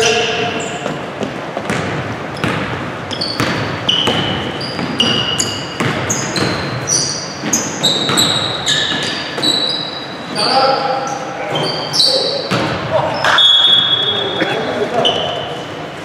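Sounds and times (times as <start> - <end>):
ball dribbling thuds: 0.0 - 9.8, 12.4 - 12.9
shoes squeaking on gym floor: 0.0 - 15.8.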